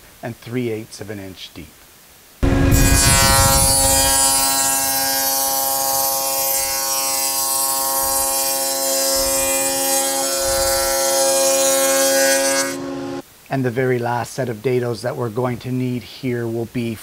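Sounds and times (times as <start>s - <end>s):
table saw motor hum: 2.4s - 13.2s
saw blade hissing in wood: 2.6s - 13.2s.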